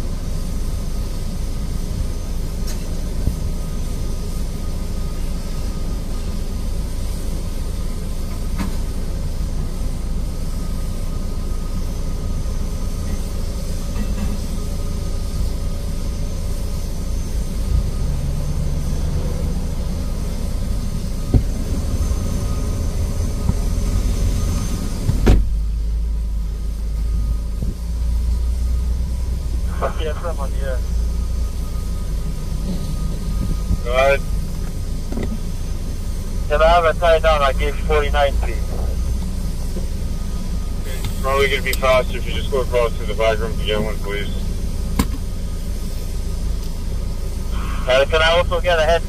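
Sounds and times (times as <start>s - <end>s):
faint high whine: 0.0s - 49.0s
low engine rumble: 0.0s - 49.0s.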